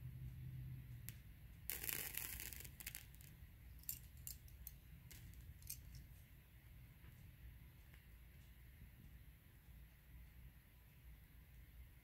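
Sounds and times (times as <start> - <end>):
candle flame crackling: 1.1 - 7.1.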